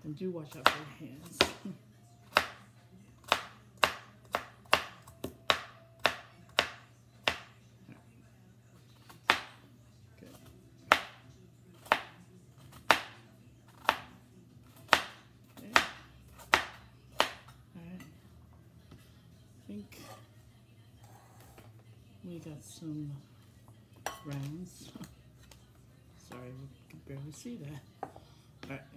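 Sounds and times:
knife chopping on cutting board: 0.6s - 1.7s, 3.2s - 7.5s, 10.4s - 11.2s, 11.8s - 14.1s, 14.7s - 17.5s.

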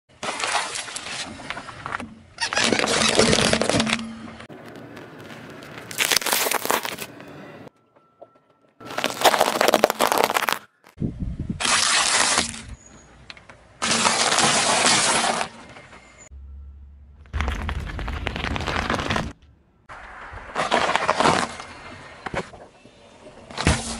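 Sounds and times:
car tyre crushing brittle things: 2.6s - 7.3s, 8.8s - 11.0s, 13.8s - 15.6s, 17.3s - 19.4s, 20.0s - 22.6s.

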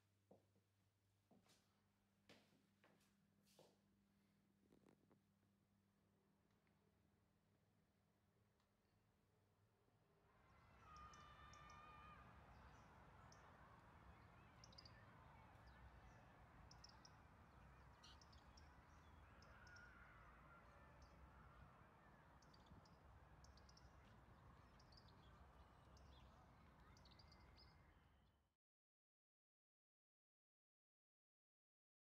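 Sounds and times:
small birds chirping: 10.8s - 28.2s.

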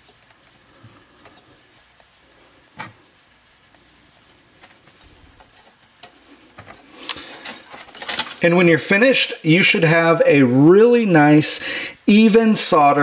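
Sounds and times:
flux sizzling faintly: 0.0s - 7.7s.

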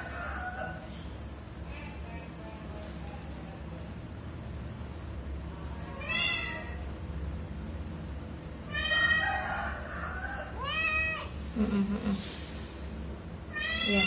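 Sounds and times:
cat meowing: 5.8s - 6.8s, 8.7s - 9.3s, 10.6s - 11.3s, 13.5s - 14.0s.

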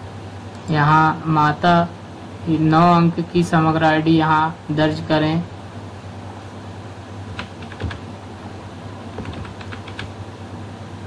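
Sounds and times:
steady low hum: 0.0s - 11.0s
keyboard keystrokes clicking: 7.3s - 8.0s, 9.1s - 10.1s.

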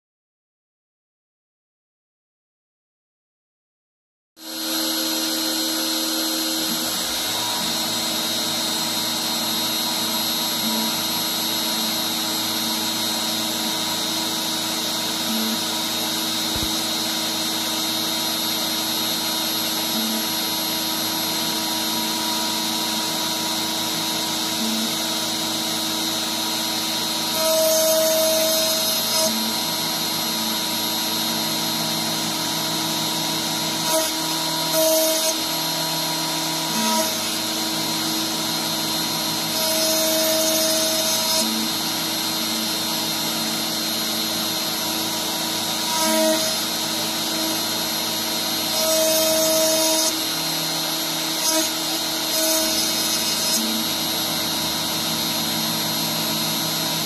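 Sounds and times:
router whine milling wood: 4.4s - 57.0s.

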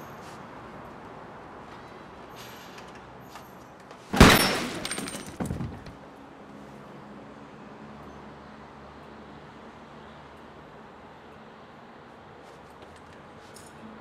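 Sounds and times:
loud pistol shot: 4.1s - 5.0s.

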